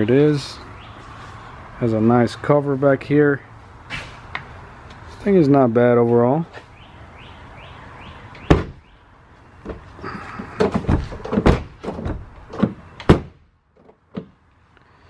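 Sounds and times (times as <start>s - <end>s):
bed cover clunking and knocking: 10.6s - 13.4s.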